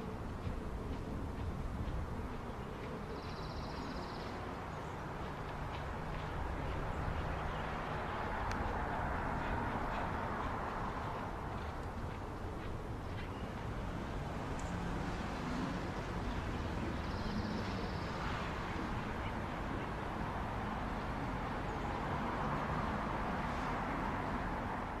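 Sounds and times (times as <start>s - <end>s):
distant traffic: 0.0s - 25.0s
faint bird calls: 2.4s - 4.4s.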